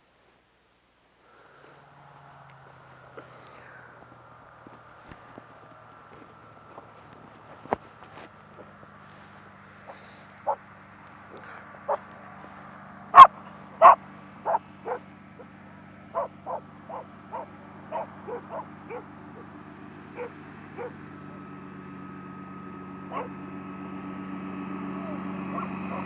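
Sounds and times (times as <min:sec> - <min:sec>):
hovercraft engine drone: 0:01.2 - 0:26.0
dog barking: 0:09.9 - 0:10.6, 0:11.8 - 0:12.0, 0:13.1 - 0:15.5, 0:16.1 - 0:19.5, 0:20.1 - 0:21.0, 0:23.1 - 0:23.4, 0:25.5 - 0:26.0.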